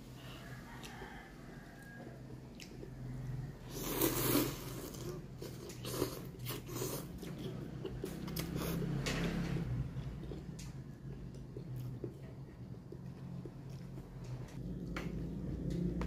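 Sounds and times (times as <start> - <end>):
chewing: 0.5 - 16.0
person slurping noodles: 3.6 - 7.3.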